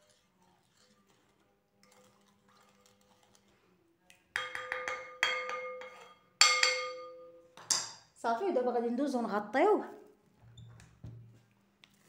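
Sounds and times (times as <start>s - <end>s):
faint stirring in bowl: 0.0s - 6.6s
wooden spoon knocking glass bowl: 4.4s - 8.0s.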